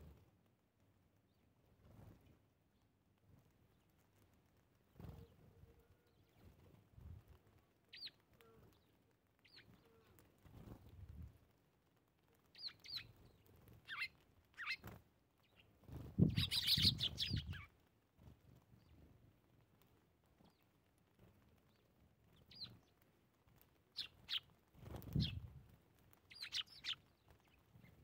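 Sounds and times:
sparrows chirping: 6.0 - 6.6, 7.9 - 10.1, 12.5 - 17.7, 21.7 - 23.0, 23.9 - 25.5, 26.3 - 28.0.

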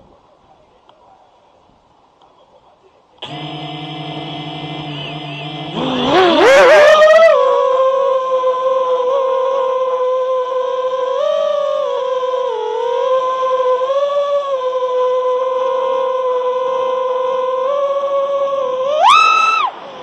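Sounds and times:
drone motors whining: 3.2 - 7.6.

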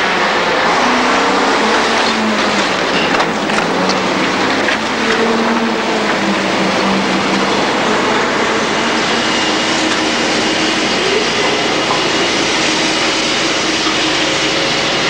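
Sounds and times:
loud engine and machinery noise: 0.0 - 15.0.

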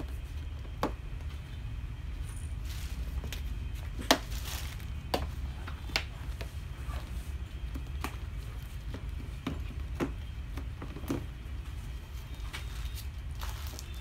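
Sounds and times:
steady low hum: 0.0 - 14.0
knocks and clatters on plastic: 7.7 - 11.4.

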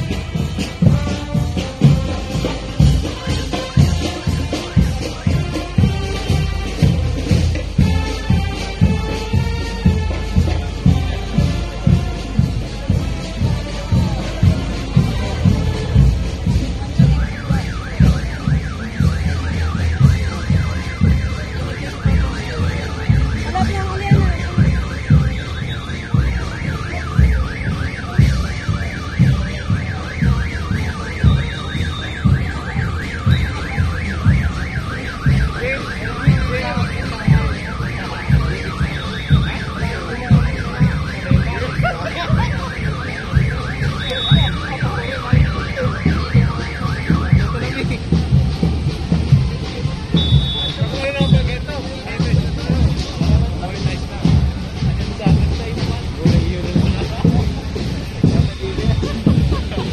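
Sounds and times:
parade drums beating: 0.0 - 59.9
warbling electronic siren: 17.2 - 23.7, 24.5 - 47.8.

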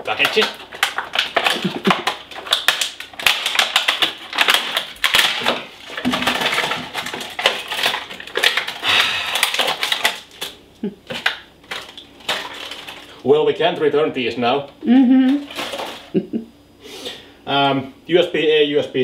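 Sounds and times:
plastic bags crinkling: 0.0 - 13.3, 15.3 - 16.2.

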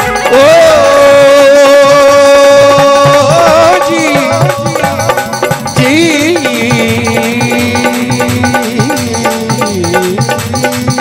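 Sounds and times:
hand drums: 0.0 - 11.0
harmonium: 0.0 - 11.0
man singing a long high note: 0.0 - 11.0.

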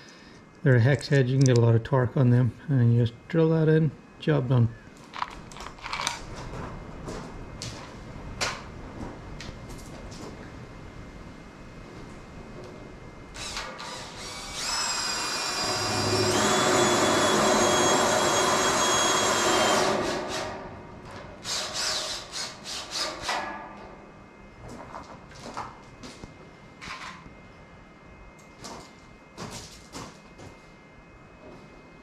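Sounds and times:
cordless drill driving screws: 13.4 - 20.6, 21.4 - 23.2.

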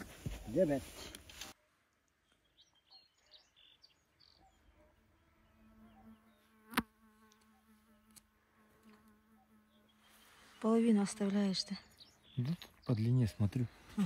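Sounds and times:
insect buzzing: 4.6 - 11.2.

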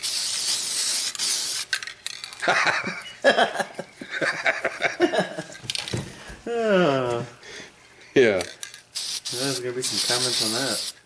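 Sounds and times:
aerosol can spraying: 0.0 - 1.8, 9.0 - 11.0.

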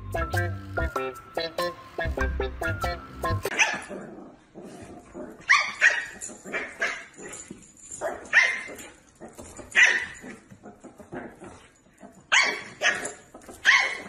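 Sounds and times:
dog yapping: 3.5 - 4.0, 5.4 - 7.4, 8.0 - 9.0, 9.7 - 11.2, 12.3 - 14.0.

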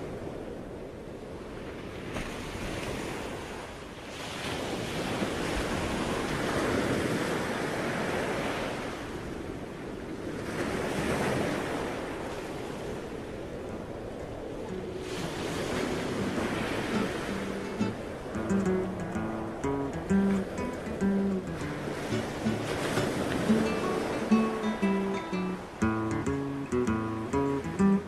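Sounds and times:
ocean surf breaking: 0.0 - 28.0
wind buffeting microphone: 0.0 - 28.0.

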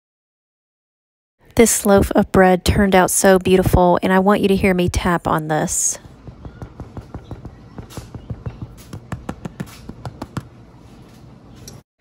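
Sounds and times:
fingers tapping on bread crust: 6.0 - 10.6.

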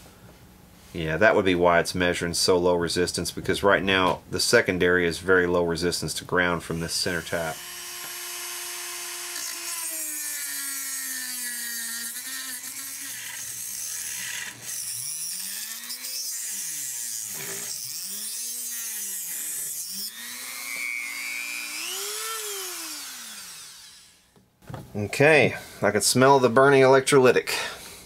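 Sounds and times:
rotary tool grinding metal: 7.0 - 24.2.

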